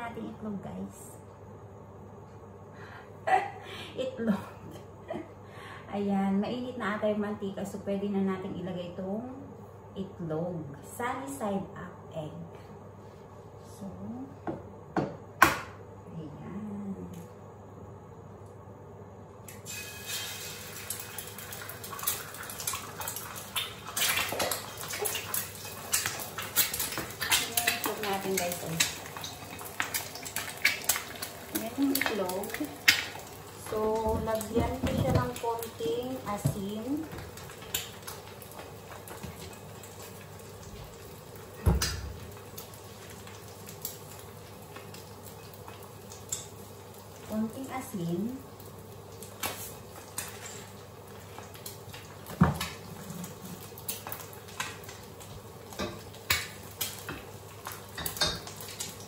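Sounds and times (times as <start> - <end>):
egg frying in sizzling oil: 19.4 - 59.0.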